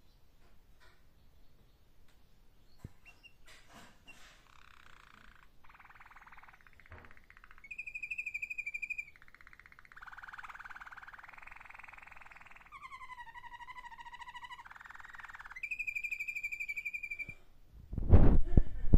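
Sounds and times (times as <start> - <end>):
canary singing trills: 2.6 - 3.5, 4.1 - 17.4.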